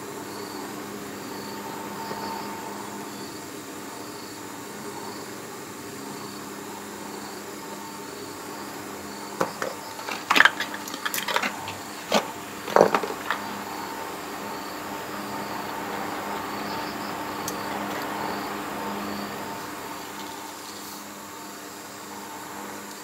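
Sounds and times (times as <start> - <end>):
steady background noise: 0.0 - 23.0
plastic pipe fittings clattering: 9.4 - 13.5.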